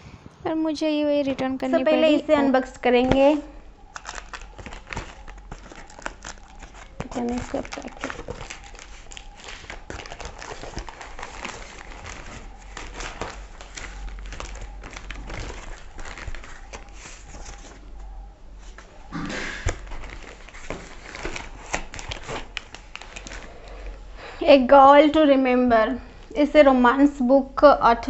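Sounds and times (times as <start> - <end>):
cardboard tearing and crinkling: 3.9 - 17.8, 19.4 - 23.6.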